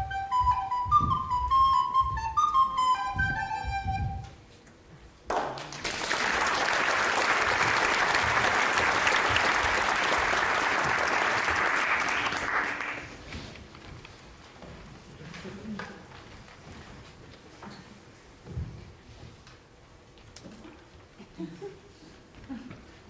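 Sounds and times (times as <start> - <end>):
audience applause: 5.3 - 13.3.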